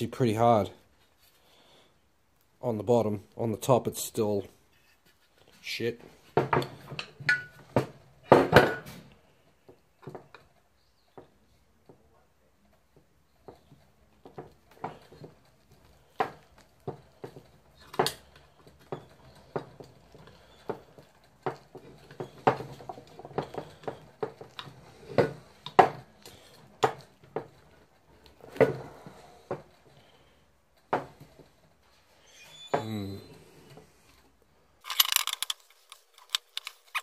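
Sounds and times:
screwdriver scraping metal and plastic: 34.8s - 37.0s.

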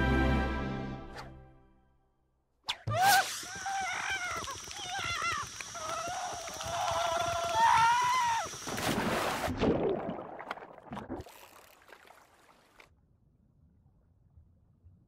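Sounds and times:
cartoon scream wavering in pitch: 2.8s - 8.6s
splash into water: 6.9s - 12.9s
water sloshing: 8.6s - 12.9s
bubbly plops: 8.7s - 12.9s.

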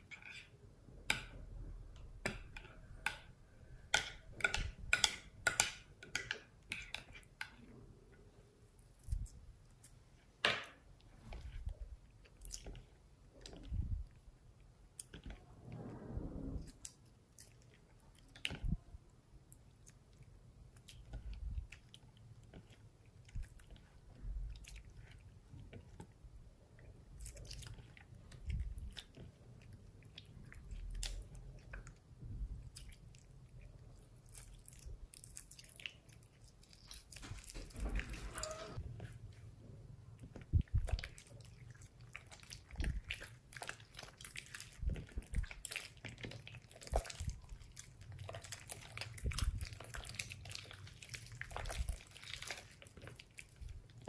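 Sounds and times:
slime squelching: 27.0s - 54.0s.

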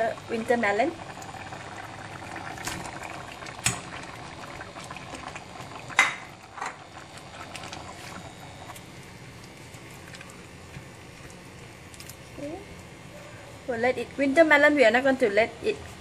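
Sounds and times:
curry bubbling: 0.0s - 12.4s.

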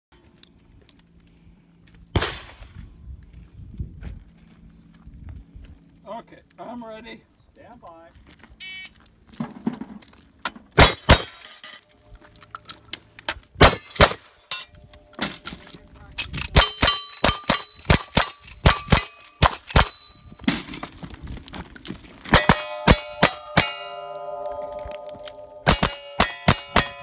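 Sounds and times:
shotgun firing: 2.2s - 2.7s, 10.8s - 11.4s, 13.6s - 14.3s
rifle shots: 10.8s - 11.4s, 13.6s - 14.3s
steel targets ringing: 13.6s - 15.7s, 16.6s - 20.5s, 22.3s - 27.0s
steel plates clanging: 13.6s - 21.1s, 22.3s - 27.0s.

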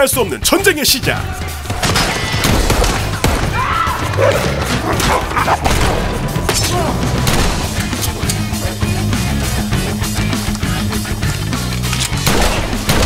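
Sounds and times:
driving background music: 0.0s - 13.0s
people shouting: 1.0s - 7.3s
gunshots: 1.6s - 3.6s, 5.0s - 8.1s, 12.1s - 13.0s.

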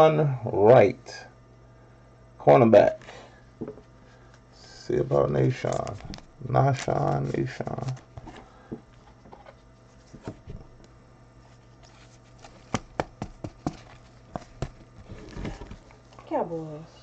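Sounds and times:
soft plastic rustling: 11.4s - 12.9s.

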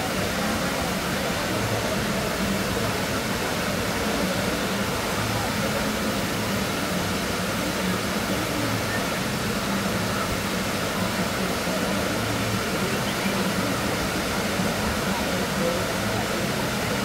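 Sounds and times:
murmur of voices: 0.0s - 17.0s
rushing water: 0.0s - 17.0s.

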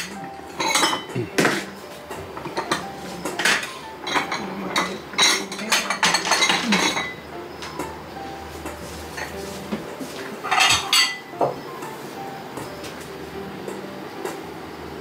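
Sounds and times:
dishes and utensils clinking: 0.0s - 8.0s, 8.6s - 12.0s.

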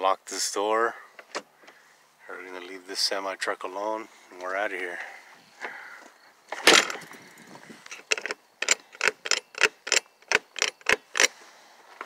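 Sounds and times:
door handle and lock clicking: 8.0s - 11.3s.

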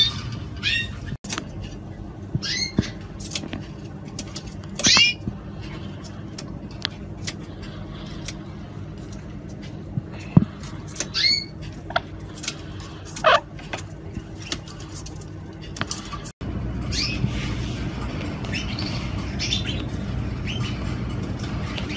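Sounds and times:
canaries chirping: 0.0s - 1.2s, 2.4s - 3.0s, 4.8s - 5.2s, 11.1s - 12.0s, 13.2s - 13.4s, 16.9s - 17.3s, 18.4s - 20.9s
low hum: 0.0s - 21.9s.

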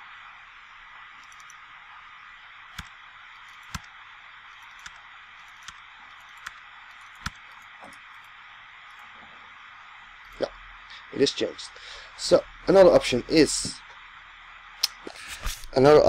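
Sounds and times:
microphone hiss: 0.0s - 16.0s
mouse and keyboard clicks: 1.2s - 1.6s, 2.7s - 3.9s, 4.5s - 8.3s.

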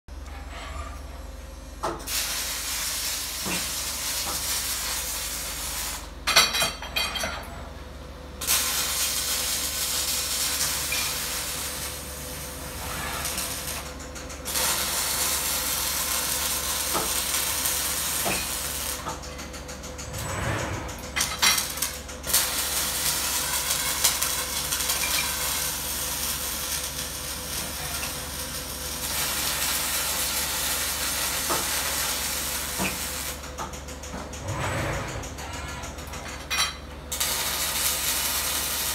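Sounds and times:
welding arc hissing and crackling: 1.8s - 6.2s, 8.4s - 19.2s, 21.2s - 33.5s, 37.1s - 38.9s.

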